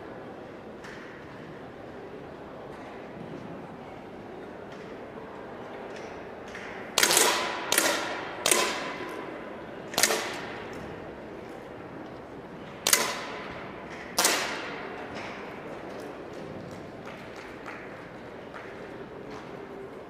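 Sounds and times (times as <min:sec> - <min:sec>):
air pistol shots: 0:07.0 - 0:09.3, 0:09.9 - 0:10.8, 0:12.8 - 0:15.0.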